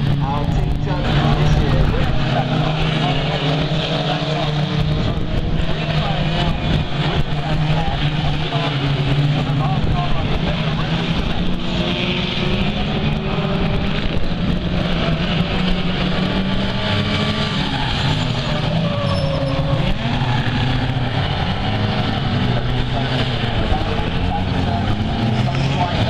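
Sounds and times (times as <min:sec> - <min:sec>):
racing car engines revving: 0:00.0 - 0:26.0.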